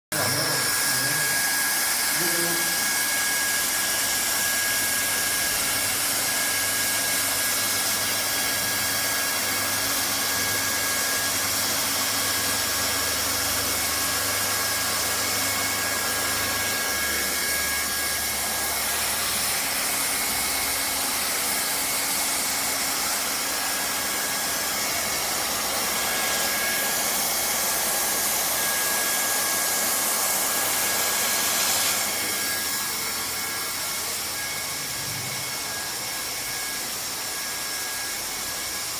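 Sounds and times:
hot-air welding gun blower hissing: 0.1 - 8.8, 13.4 - 38.6.

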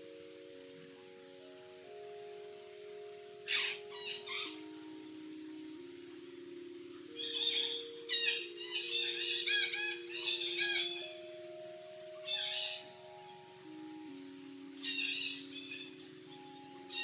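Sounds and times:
slow background music: 0.0 - 17.0
parrots calling: 3.5 - 4.6, 7.2 - 11.2, 12.2 - 12.8.

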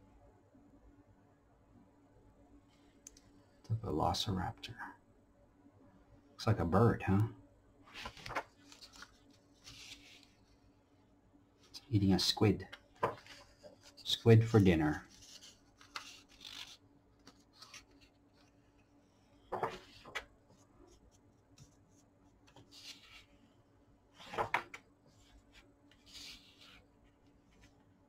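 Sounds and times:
book pages turning: 7.9 - 10.6, 12.6 - 18.9, 19.5 - 23.4, 24.2 - 27.8.

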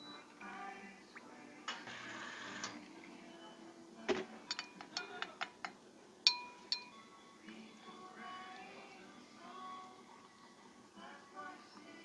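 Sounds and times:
soft background music: 0.0 - 12.0
spoon clinking against glass: 4.4 - 5.6, 6.3 - 7.0.

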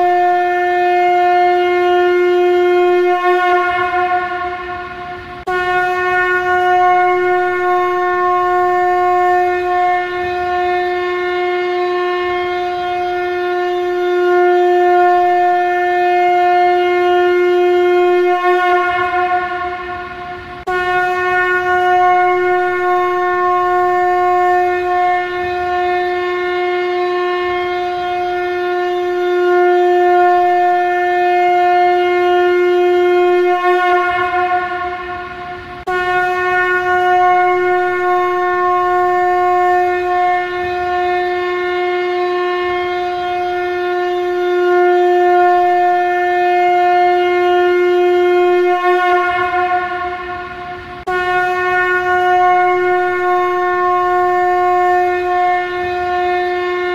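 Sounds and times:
conch shell blasts: 0.0 - 56.9.

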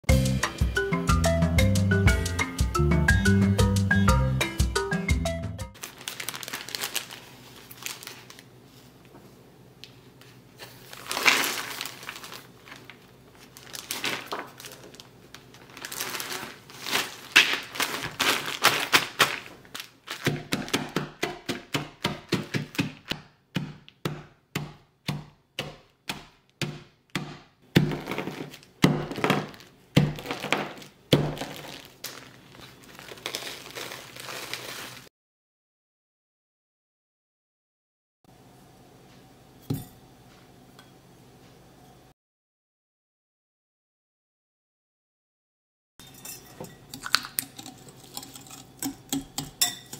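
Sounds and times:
plastic bag crinkling: 5.8 - 8.9, 10.6 - 20.7, 27.9 - 35.1
thuds of nuts being pounded: 20.2 - 31.6.

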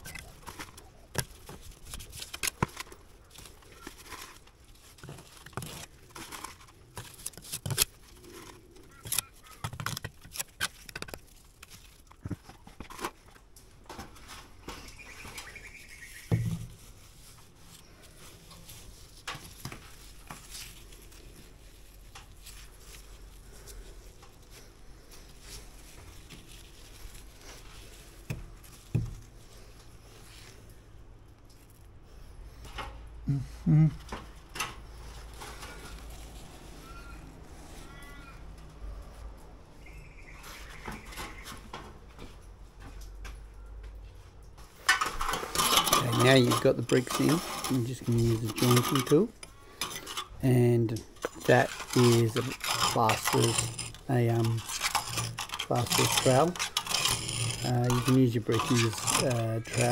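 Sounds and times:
trowel tapping and scraping brick: 51.2 - 59.9.

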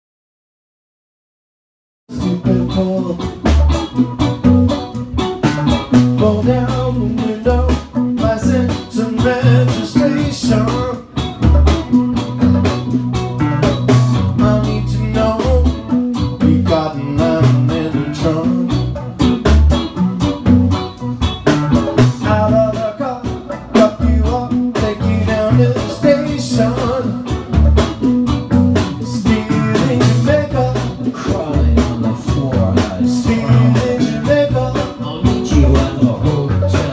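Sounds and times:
person singing: 2.1 - 4.0, 5.9 - 11.7, 14.3 - 19.2, 22.0 - 27.6, 28.8 - 36.9
drum kit: 2.1 - 36.9
electric bass: 2.1 - 36.9
guitar: 2.1 - 36.9.

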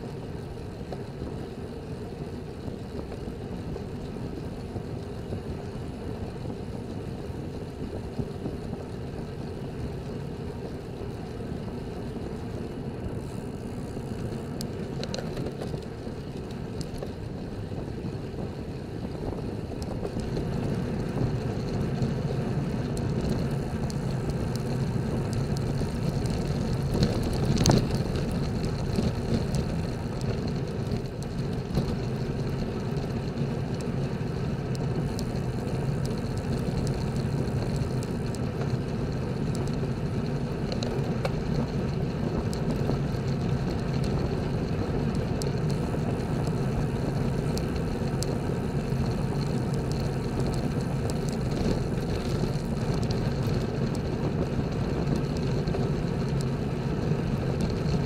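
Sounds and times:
bicycle tyre hum: 0.0 - 58.0
wind rush on microphone: 0.0 - 58.0.

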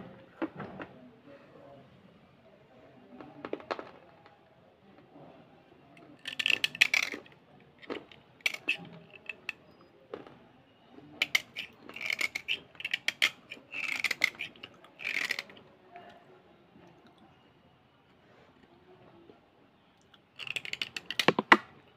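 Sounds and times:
blade scraping slate pencil: 6.2 - 7.2, 8.4 - 9.6, 11.2 - 15.6.

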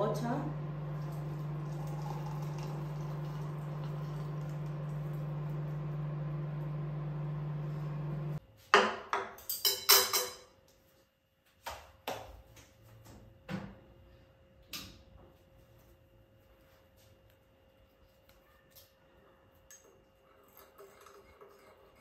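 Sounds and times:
hot water pouring into a glass: 0.5 - 6.7
kitchenware clinking and knocking: 8.8 - 10.5.

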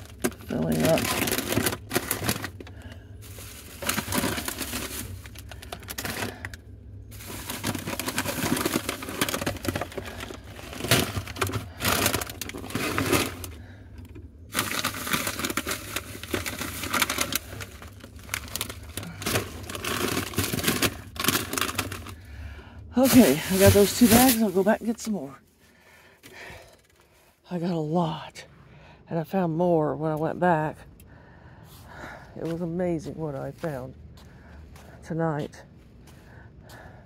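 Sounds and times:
plastic snack bags crinkling: 0.0 - 22.4, 23.0 - 25.4.

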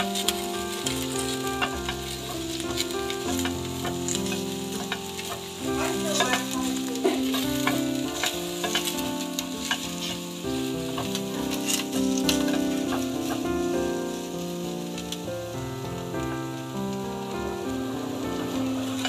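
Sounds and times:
spatula stirring in pan: 0.0 - 15.1
food sizzling in oil: 0.0 - 19.0.

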